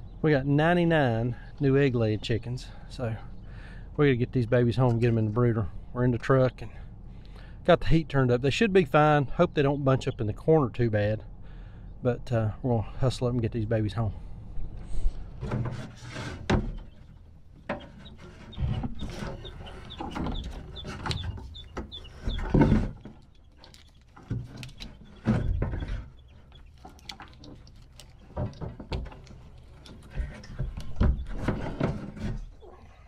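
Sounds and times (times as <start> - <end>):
knocks and rattles: 15.4 - 32.5
chicks peeping: 16.7 - 33.0.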